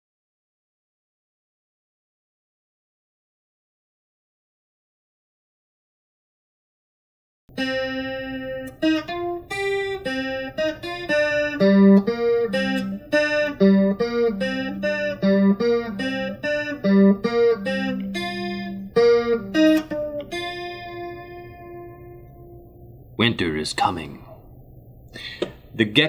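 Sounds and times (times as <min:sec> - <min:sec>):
electric guitar melody: 0:07.5 - 0:23.0.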